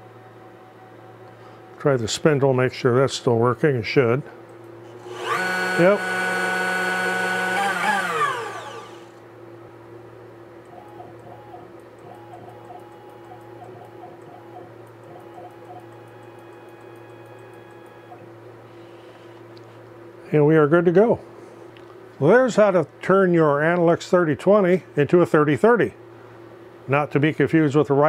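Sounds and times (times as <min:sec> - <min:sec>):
faint steady hum: 0:00.0 - 0:28.0
router whining and winding down: 0:04.9 - 0:09.2
stepper motor warbling tone: 0:05.1 - 0:09.1.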